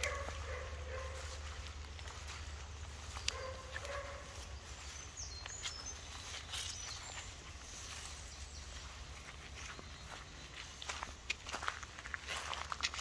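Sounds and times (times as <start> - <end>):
high bird chirps: 2.9 - 9.0.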